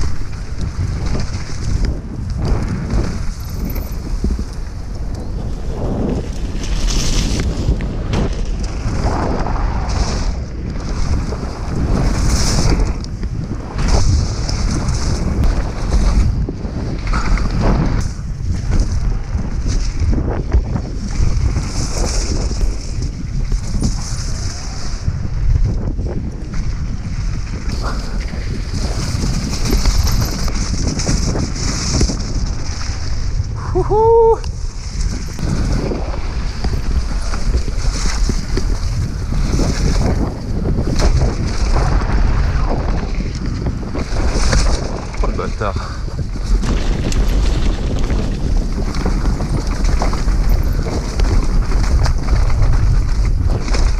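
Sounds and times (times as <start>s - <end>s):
tyres rolling on dirt: 0.0s - 33.6s, 34.6s - 53.9s
bike rattling: 0.0s - 53.9s
wind buffeting microphone: 0.0s - 53.9s.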